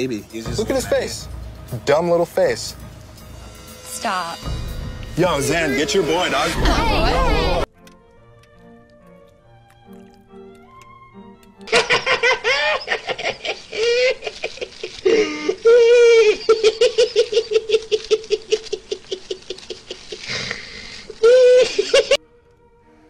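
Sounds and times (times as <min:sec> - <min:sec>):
man laughing hard: 0:11.7 - 0:22.2.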